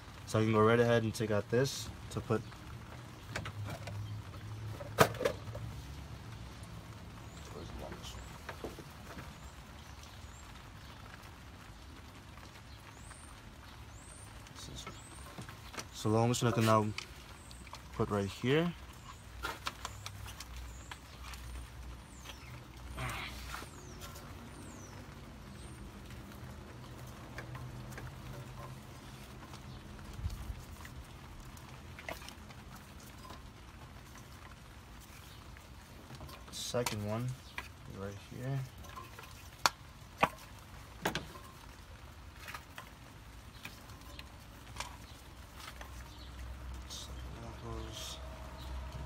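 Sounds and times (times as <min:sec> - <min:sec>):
birds chirping: 0:00.0 - 0:49.0
gloved hands rustling and clicking: 0:23.6 - 0:46.8.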